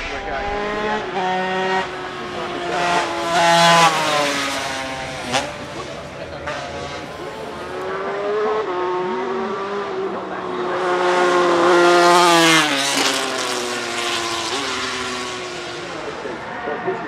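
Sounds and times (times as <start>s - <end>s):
racing motorcycle passing by: 0.0s - 17.0s.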